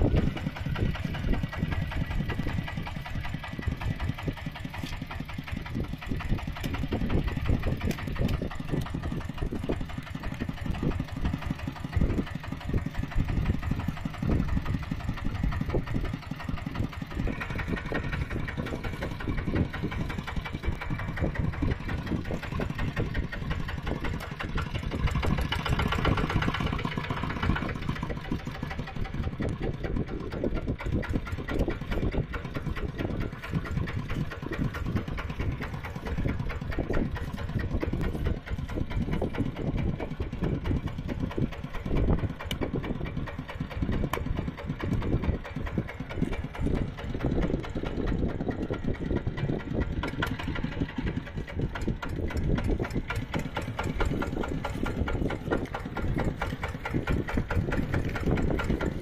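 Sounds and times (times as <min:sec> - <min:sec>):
tractor engine chugging: 0:00.0 - 0:59.0.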